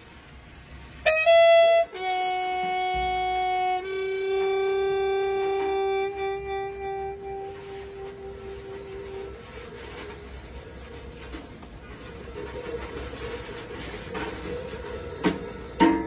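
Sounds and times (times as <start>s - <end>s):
trumpet long held notes: 1.0s - 11.4s.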